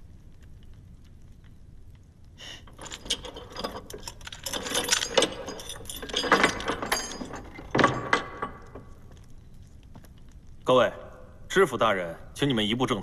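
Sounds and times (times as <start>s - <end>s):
keys and chain rattling: 2.6s - 9.3s
cell door clanks: 2.9s - 8.9s.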